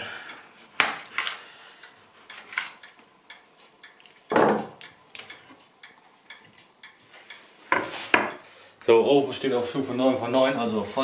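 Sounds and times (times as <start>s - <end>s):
knife knocking on cutting board: 4.3s - 4.7s.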